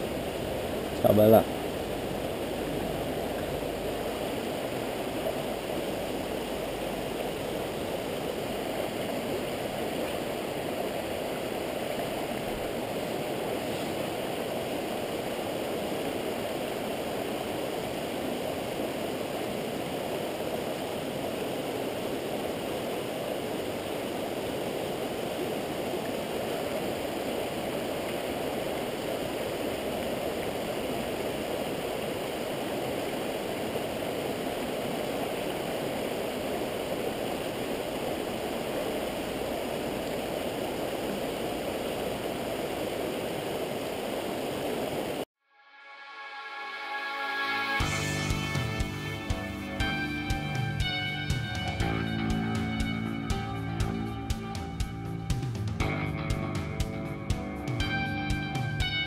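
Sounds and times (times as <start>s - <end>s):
stream running over rocks: 0.0s - 45.3s.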